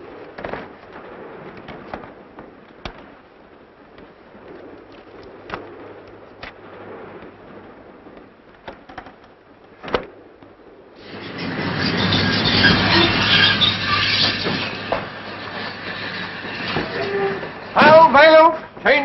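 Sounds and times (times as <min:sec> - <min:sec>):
railway carriage rumble: 0:00.0 - 0:19.0
wheel clicks and knocks: 0:08.6 - 0:10.1.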